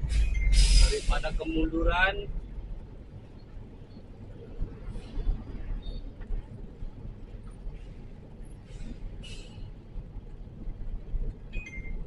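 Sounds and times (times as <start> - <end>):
brief hiss: 0.0 - 1.4
diesel truck engine rumble: 0.0 - 12.0.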